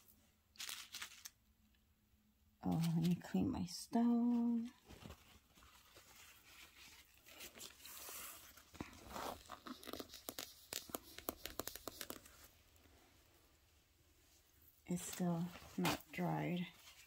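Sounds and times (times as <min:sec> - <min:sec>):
cotton pad rubbing on stone: 0:09.2 - 0:12.3.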